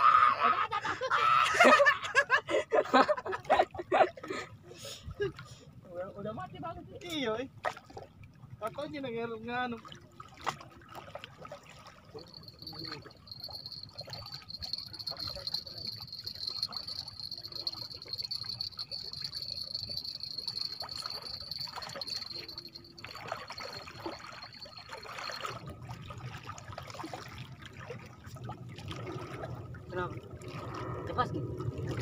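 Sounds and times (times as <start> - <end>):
waves lapping against rocks: 9.8 - 32.0
high-pitched whine: 12.3 - 25.7.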